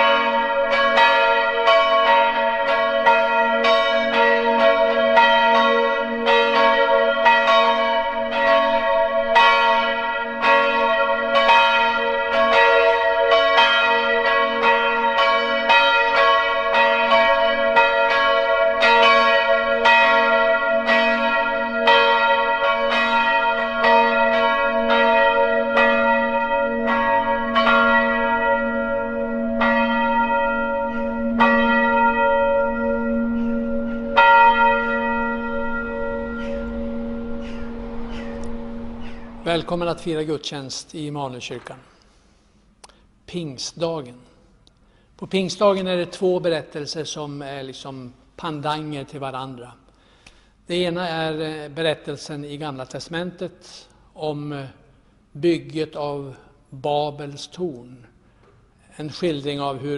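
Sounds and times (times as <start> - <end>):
church bells pealing: 0.0 - 41.8, 45.2 - 58.1, 59.0 - 59.9.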